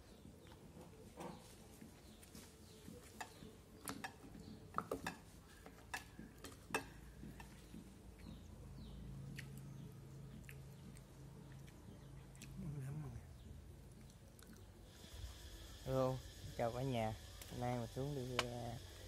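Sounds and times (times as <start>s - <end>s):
faint low hum: 5.4s - 19.0s.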